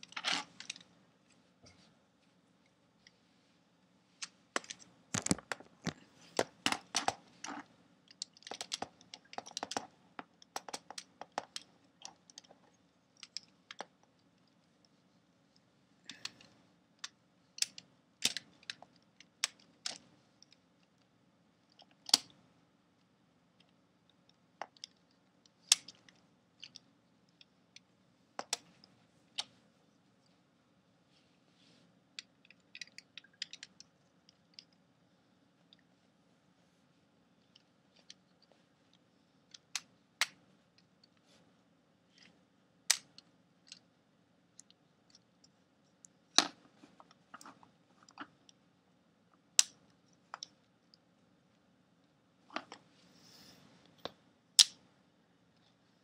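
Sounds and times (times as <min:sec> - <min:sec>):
plastic parts clicking: 0:04.6 - 0:13.9, 0:16.1 - 0:20.6, 0:32.2 - 0:33.9.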